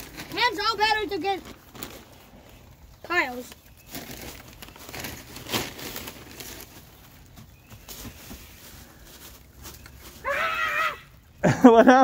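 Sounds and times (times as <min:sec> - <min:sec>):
dry wood shavings rustling: 0:00.0 - 0:11.2.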